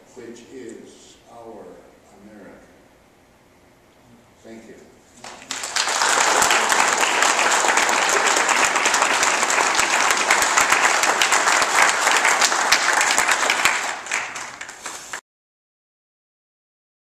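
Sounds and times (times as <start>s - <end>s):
audience applauding: 5.2s - 15.2s.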